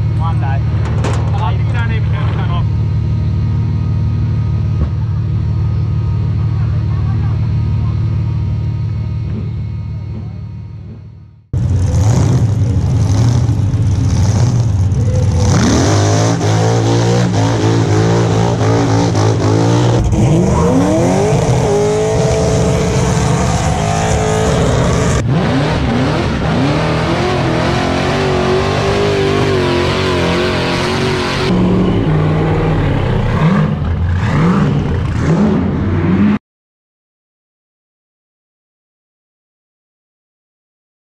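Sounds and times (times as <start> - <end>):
car engines revving hard: 10.8 - 36.4.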